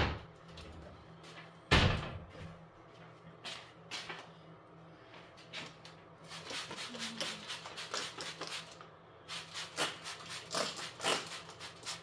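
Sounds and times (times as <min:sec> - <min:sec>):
spray bottle spritzes: 0:06.3 - 0:12.0.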